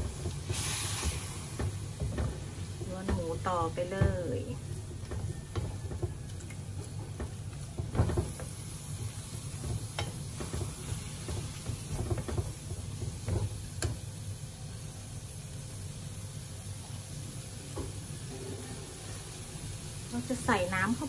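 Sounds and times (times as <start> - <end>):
meat sizzling in a pan: 0.0 - 21.0
spatula scraping and tapping pan: 5.0 - 14.0.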